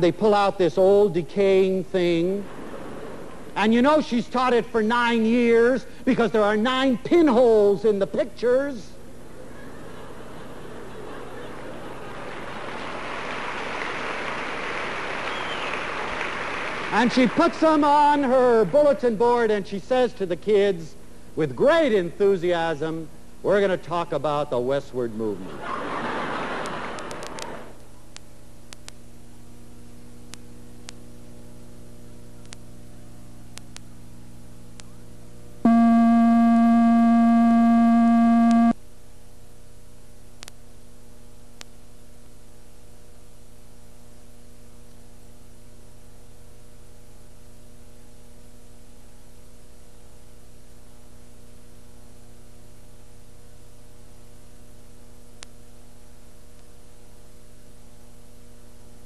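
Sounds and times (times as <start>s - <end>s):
electrical mains hum: 0.0s - 59.0s
loud buzzing tone: 35.7s - 38.8s.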